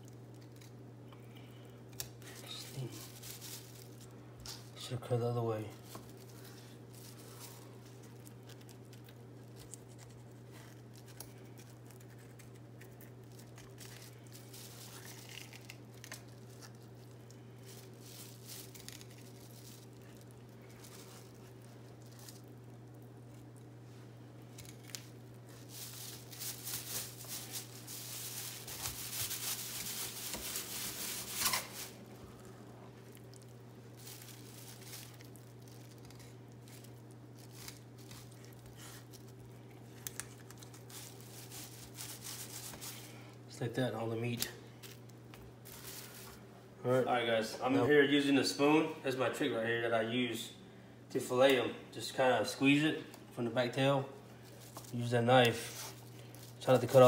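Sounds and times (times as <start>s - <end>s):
plastic sheeting crinkling: 2.2s - 4.2s, 5.8s - 23.7s, 24.6s - 43.2s, 45.6s - 46.4s, 54.4s - 57.0s.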